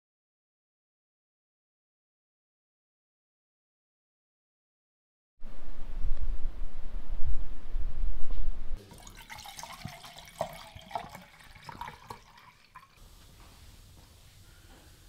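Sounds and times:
wind buffeting microphone: 5.4s - 8.8s
water poured into metal pot: 8.8s - 13.3s.

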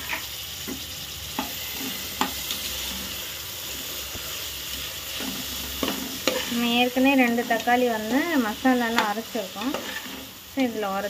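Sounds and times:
vegetables sizzling in oil: 0.0s - 11.0s
ladle scraping metal pot: 5.1s - 6.7s, 9.6s - 10.4s.

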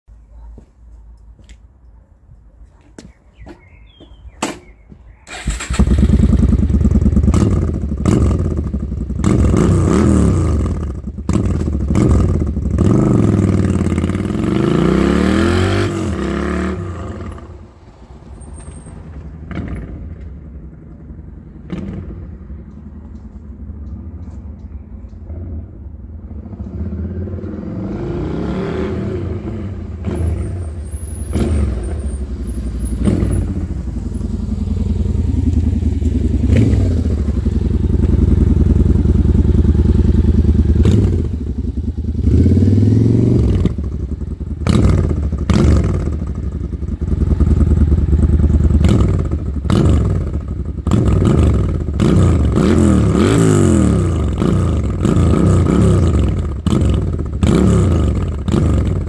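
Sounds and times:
motorcycle engine revving: 5.3s - 17.6s, 25.3s - 59.0s.

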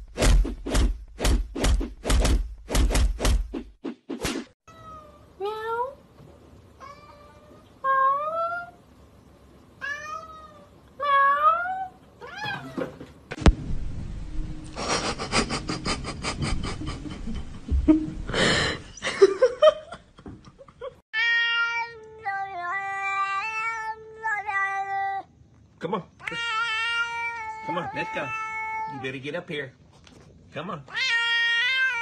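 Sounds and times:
cat meowing: 6.8s - 8.8s, 9.8s - 12.9s, 21.2s - 25.3s, 26.2s - 29.1s, 30.9s - 32.0s
cat yowling: 9.8s - 12.8s, 26.2s - 29.1s, 30.9s - 32.0s.

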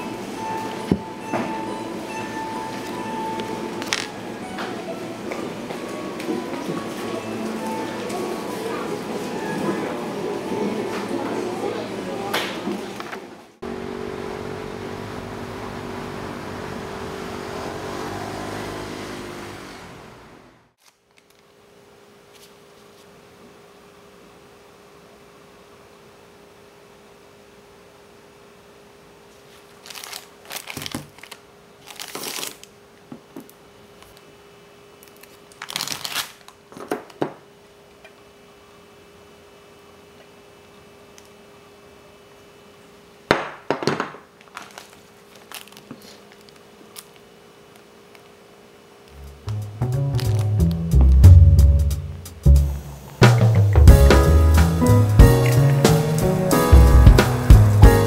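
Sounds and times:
road noise: 13.6s - 20.7s
vehicle engine hum: 13.6s - 20.7s, 49.1s - 57.9s
plastic packaging crinkling: 29.6s - 32.7s, 35.0s - 36.6s, 44.4s - 47.2s, 49.1s - 50.9s.

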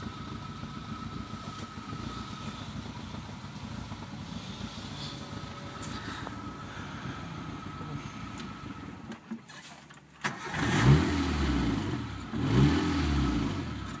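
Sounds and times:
car engine running and revving: 0.0s - 14.0s
ignition click: 8.3s - 10.8s.

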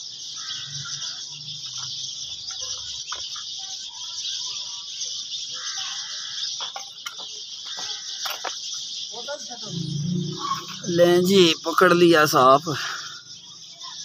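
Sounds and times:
high-pitched insect chorus: 0.0s - 14.0s
faint bird calls: 5.5s - 11.6s.

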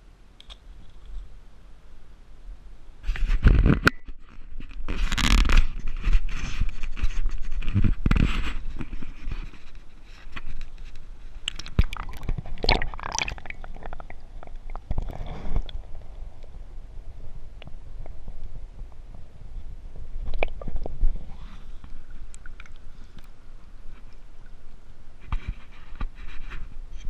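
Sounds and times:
handling knocks and scrapes: 3.0s - 12.6s
water sloshing and splashing: 11.4s - 16.2s
muffled underwater gurgling: 11.7s - 19.5s.

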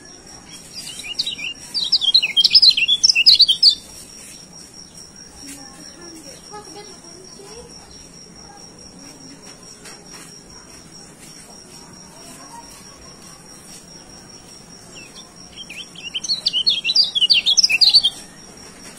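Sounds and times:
bird chirping rapidly: 0.5s - 4.4s, 14.9s - 18.3s.

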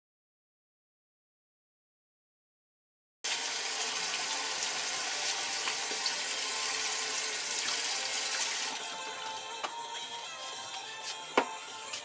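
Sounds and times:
water running from a tap: 3.2s - 9.0s.

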